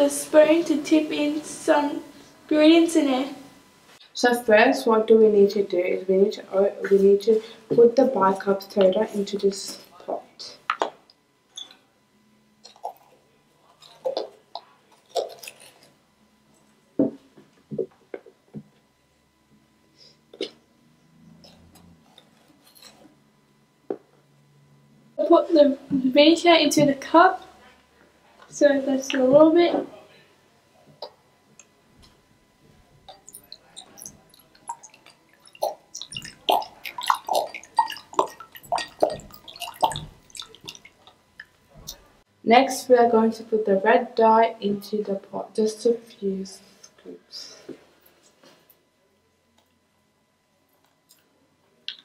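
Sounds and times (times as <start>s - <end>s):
liquid glugging into glass: 33.1s - 42.0s.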